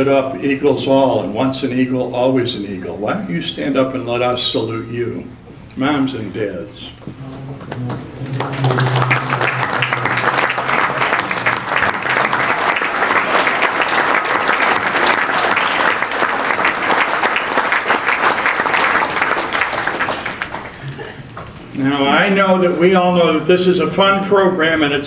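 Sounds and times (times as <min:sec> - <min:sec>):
large audience clapping: 0:07.2 - 0:21.5.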